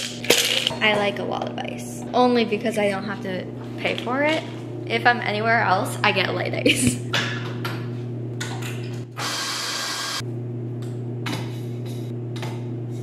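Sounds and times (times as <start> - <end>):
espresso machine humming: 7.2 - 13.0
espresso machine hiss: 9.2 - 10.2.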